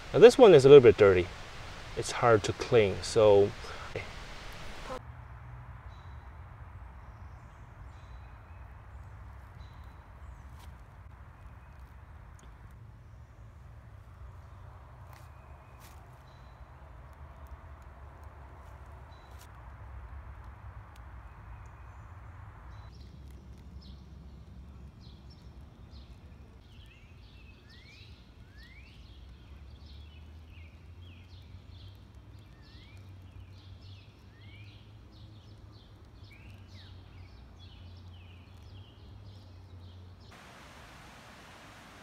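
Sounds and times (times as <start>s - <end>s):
birds chirping: 0.0s - 5.0s
outdoor hiss: 0.0s - 5.0s, 40.2s - 42.0s.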